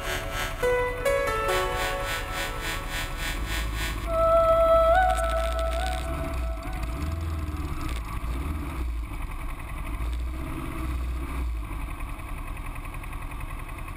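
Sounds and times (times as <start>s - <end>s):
motorcycle engines at low revs: 6.0s - 13.9s.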